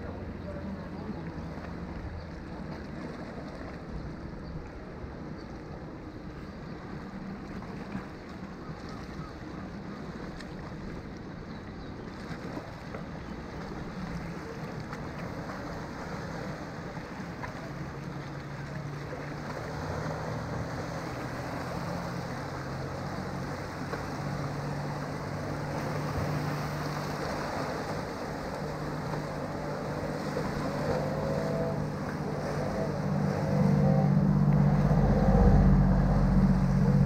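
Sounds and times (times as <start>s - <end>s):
low engine hum: 0.0s - 37.0s
small waves washing over rocks: 6.8s - 32.9s.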